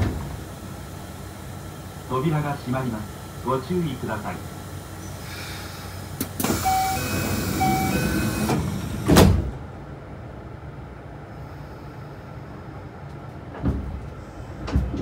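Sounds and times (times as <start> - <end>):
train doors thumping shut: 0.0 - 0.5, 6.2 - 9.7, 13.3 - 15.0
loud hiss of air: 4.4 - 7.8
beeping door chime: 6.5 - 8.6.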